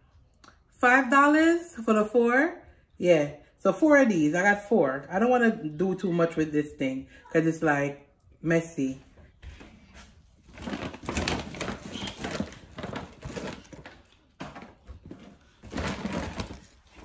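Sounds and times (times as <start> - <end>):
packaging rustling and crinkling: 10.1 - 17.0.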